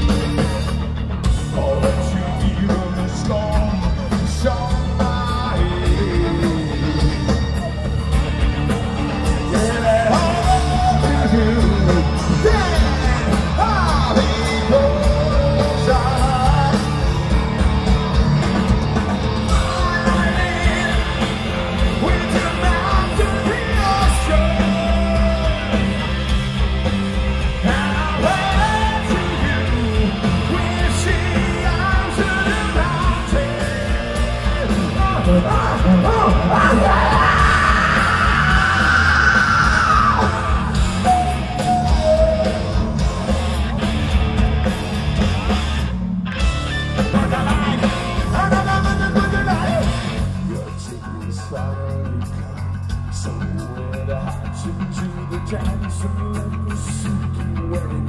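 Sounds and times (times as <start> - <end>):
live band music: 0.0 - 58.0
person singing and yelling: 9.2 - 17.4, 19.4 - 43.4, 47.1 - 58.0.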